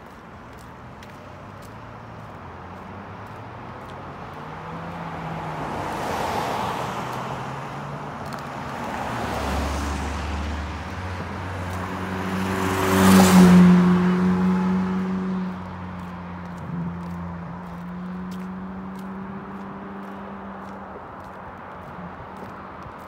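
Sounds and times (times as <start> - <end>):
cars passing on road: 0.0 - 23.0.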